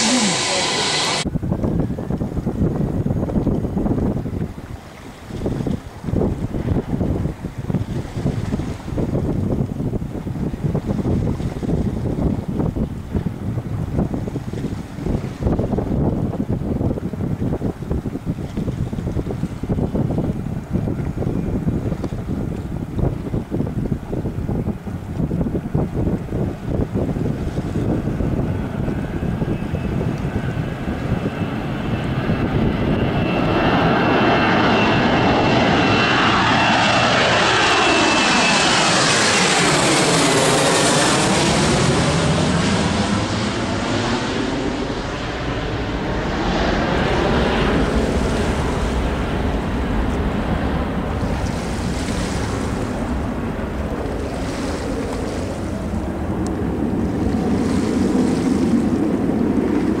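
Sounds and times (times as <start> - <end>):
jet airliner roar and whine: 0.0 - 60.0.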